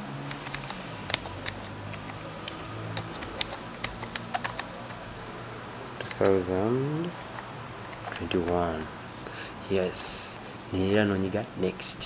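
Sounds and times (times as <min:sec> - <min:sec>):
keyboard key clicks: 0:00.2 - 0:05.1, 0:06.0 - 0:08.9.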